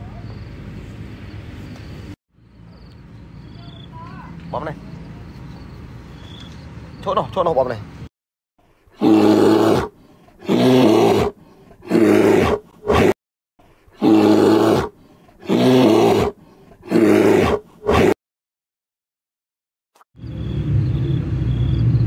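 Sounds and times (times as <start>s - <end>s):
animal grunt: 8.9s - 13.2s, 13.9s - 18.2s
large animal roaring: 9.0s - 13.2s, 14.0s - 18.2s.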